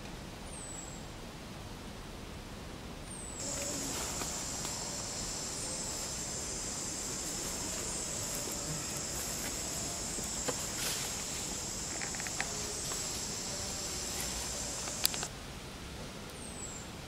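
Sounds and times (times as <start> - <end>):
dry leaves clicking: 3.4 - 15.3
high-pitched insect drone: 3.4 - 15.3.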